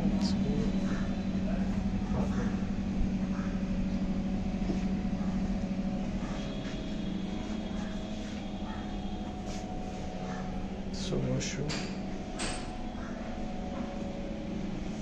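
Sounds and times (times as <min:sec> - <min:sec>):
low machine hum: 0:00.0 - 0:15.0
faint high whine: 0:06.2 - 0:11.6.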